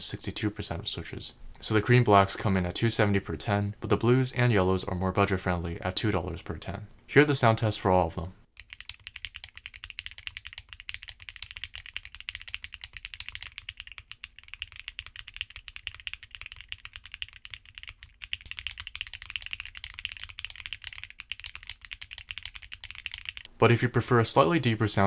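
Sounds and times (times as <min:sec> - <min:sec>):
fast typing on mechanical keyboard: 0:08.6 - 0:23.5.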